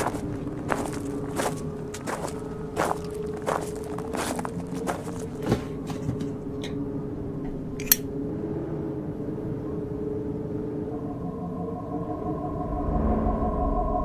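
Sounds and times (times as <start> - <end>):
cartoon footsteps crunching rubbish: 0.0 - 6.4
low ambient hum: 0.0 - 14.0
steady higher tone: 6.3 - 14.0.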